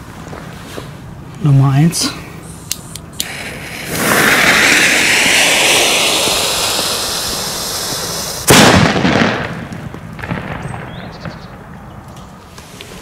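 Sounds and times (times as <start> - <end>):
lit fuse hissing: 2.5 - 8.5
firecracker bang: 3.2 - 11.6.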